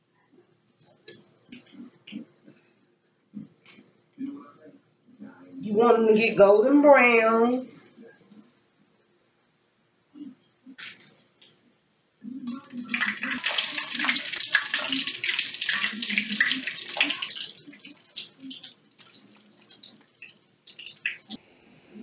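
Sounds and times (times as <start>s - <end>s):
chicken sizzling in hot grease: 12.7s - 21.4s.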